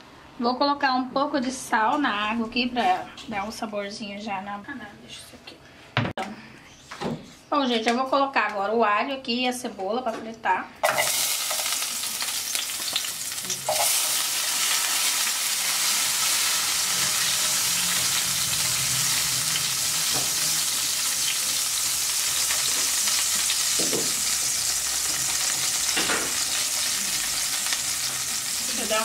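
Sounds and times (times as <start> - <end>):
garlic sizzling in oil: 10.8 - 29.0.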